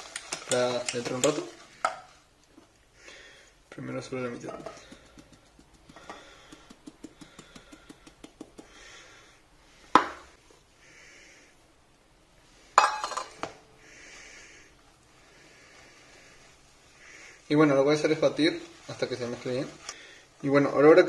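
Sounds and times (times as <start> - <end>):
whisk tapping metal bowl: 0.0 - 2.1, 4.5 - 8.8.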